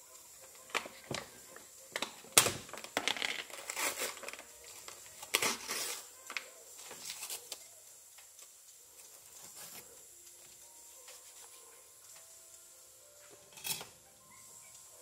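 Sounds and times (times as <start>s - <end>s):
foil seal tearing: 2.4s - 6.0s.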